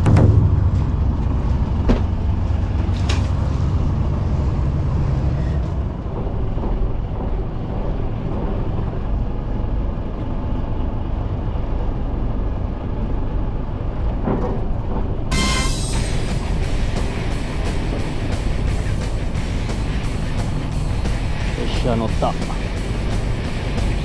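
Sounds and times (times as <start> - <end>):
boat engine rumble: 0.0 - 24.0.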